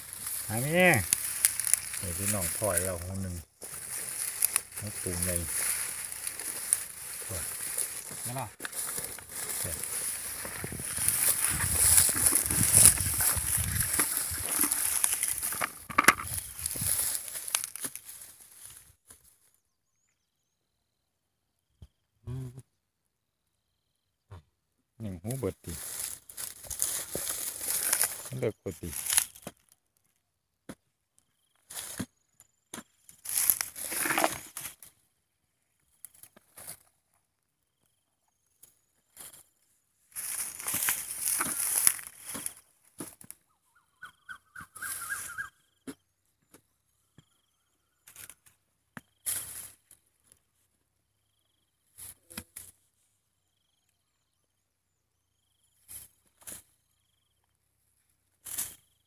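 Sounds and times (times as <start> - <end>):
stubble and soil rustling: 0.0 - 19.0, 25.3 - 29.6, 33.2 - 34.9, 40.1 - 43.3.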